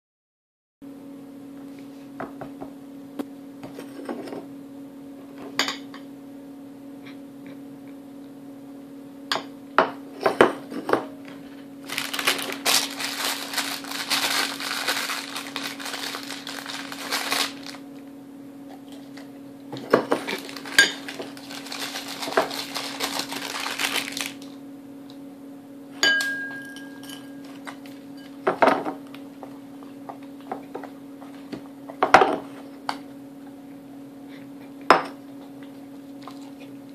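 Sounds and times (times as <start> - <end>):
plastic bag crinkling: 11.8 - 17.8, 20.2 - 24.6, 27.4 - 28.1
ceramic and glass clinks on table: 26.0 - 27.4.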